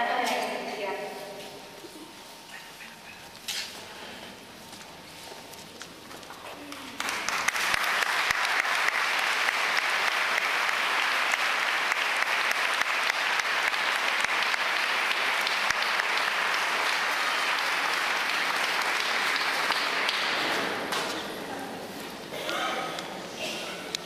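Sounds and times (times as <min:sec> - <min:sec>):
congregation applauding: 0:06.7 - 0:21.0.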